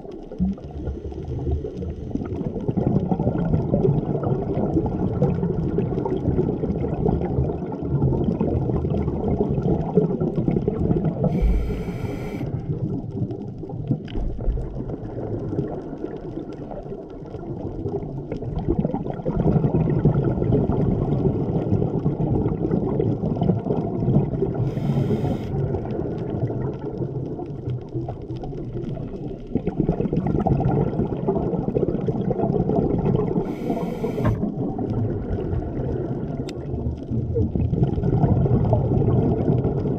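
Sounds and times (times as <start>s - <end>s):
underwater exhale bubbling: 0.0s - 39.9s
regulator inhalation hisses: 11.3s - 12.5s, 24.7s - 25.5s, 33.4s - 34.4s.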